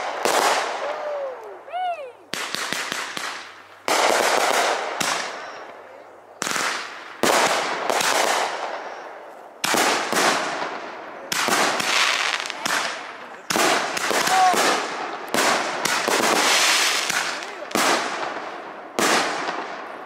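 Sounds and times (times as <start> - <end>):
fireworks bangs: 0.0 - 1.2, 2.3 - 20.0
crackle of firework sparks: 6.4 - 20.0.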